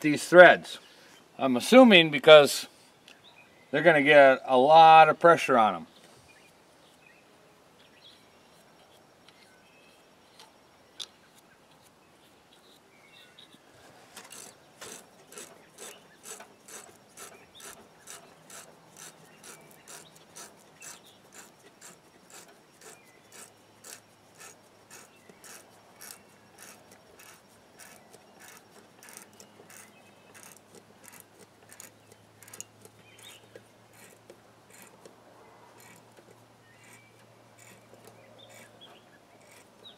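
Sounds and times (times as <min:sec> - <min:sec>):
metal threads scraping clicks: 0:14.2 - 0:35.2, 0:35.8 - 0:38.8.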